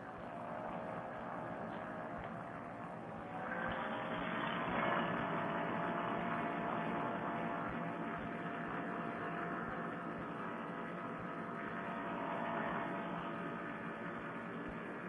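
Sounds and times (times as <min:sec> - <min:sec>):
engine and propeller running: 0:00.0 - 0:15.0.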